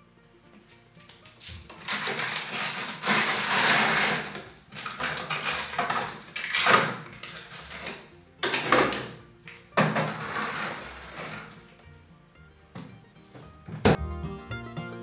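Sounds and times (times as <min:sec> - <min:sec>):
frozen packages rustling: 0:01.5 - 0:09.1, 0:09.9 - 0:11.8
containers clattering: 0:01.5 - 0:11.8.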